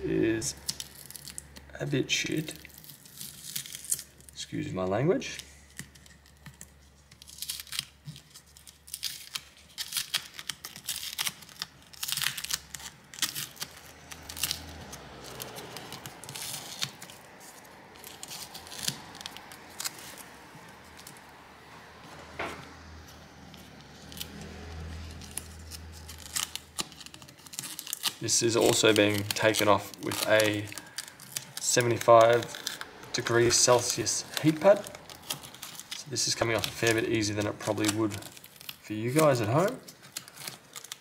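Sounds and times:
adhesive tape peeling: 0.4s - 4.4s, 5.5s - 41.0s.

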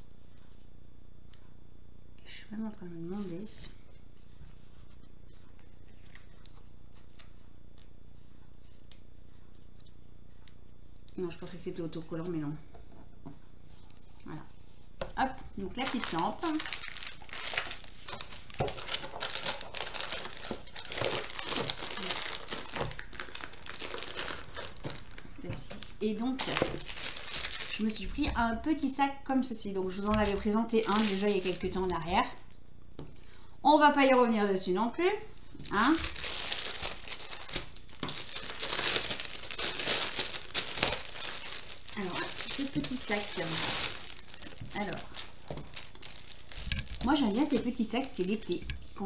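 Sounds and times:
plastic packaging crinkling: 5.3s - 7.9s, 15.6s - 28.9s, 29.7s - 32.6s, 35.4s - 49.0s.

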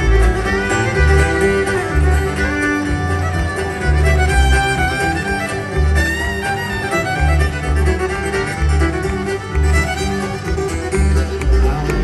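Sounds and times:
acoustic guitar rhythm: 0.0s - 12.0s
fiddle playing lead line: 0.0s - 12.0s
upright bass notes: 0.0s - 12.0s.

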